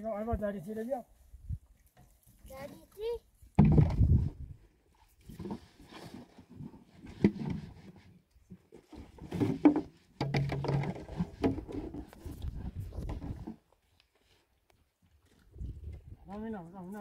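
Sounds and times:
plastic bottles knocking and clunking: 3.6s - 4.3s, 8.6s - 13.7s.

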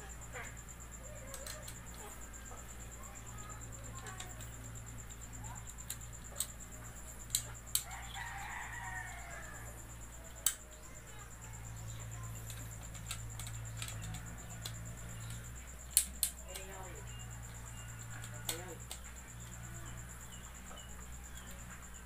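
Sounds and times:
rooster crowing: 7.8s - 10.1s.

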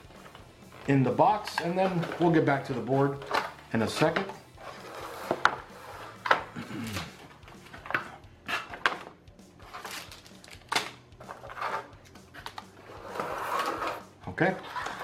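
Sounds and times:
cardboard and plastic rustling: 0.1s - 8.1s, 8.7s - 11.8s.

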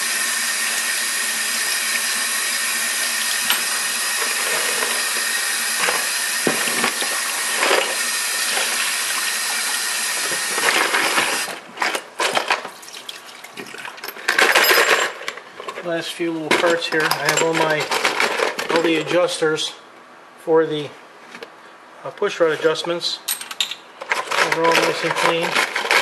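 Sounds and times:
tap water running into sink: 1.6s - 11.5s
metal parts clattering in bowl: 3.5s - 5.1s, 10.4s - 12.7s, 14.0s - 15.8s, 16.5s - 19.1s, 23.3s - 26.0s.

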